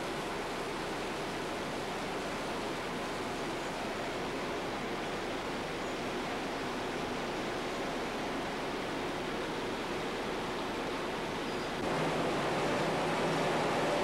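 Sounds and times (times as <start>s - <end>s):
factory machinery running: 11.8s - 14.0s.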